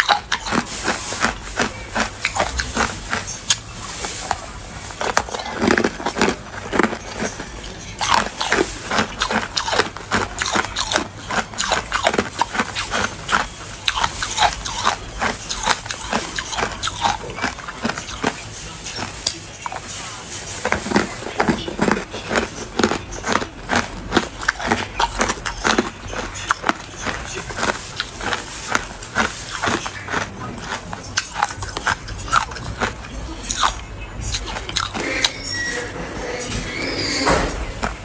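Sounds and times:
ice crunching while chewed: 0.0 - 38.0.

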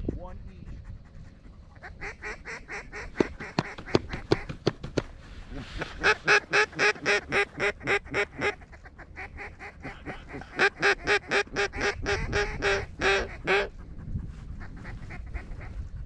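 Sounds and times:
duck call quacking: 5.8 - 13.7.

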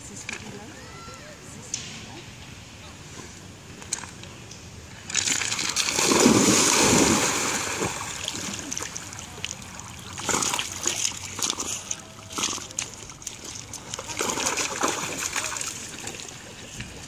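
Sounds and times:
dog splashing in water: 5.2 - 16.4.

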